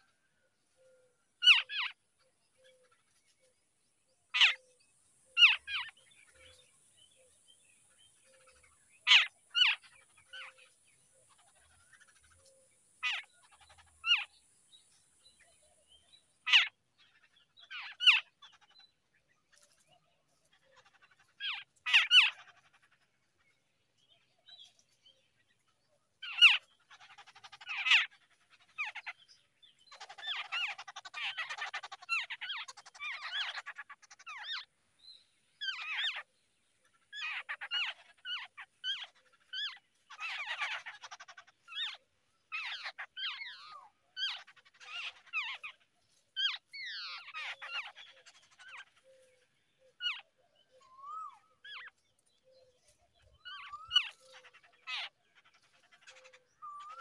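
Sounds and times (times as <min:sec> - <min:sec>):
birds calling: 0:00.0 - 0:57.0
nestlings chattering: 0:29.9 - 0:34.6.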